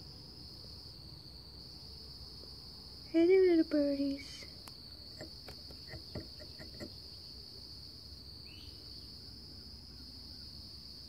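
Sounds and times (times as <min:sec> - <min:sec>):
high-pitched insect trilling: 0:03.0 - 0:10.6.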